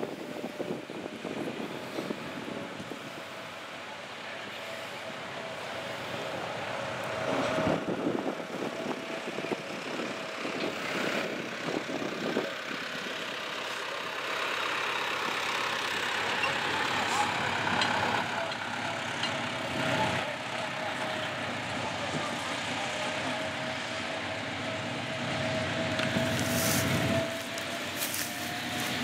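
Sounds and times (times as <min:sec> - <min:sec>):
locomotive engine running: 0:00.0 - 0:29.0
wheel and rail clatter: 0:04.2 - 0:23.5, 0:25.4 - 0:29.0.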